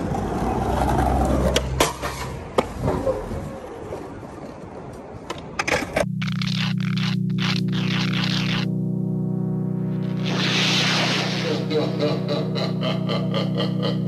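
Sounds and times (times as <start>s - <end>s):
skateboard wheels rolling on asphalt: 0.0s - 6.1s
electronic music: 6.0s - 14.0s.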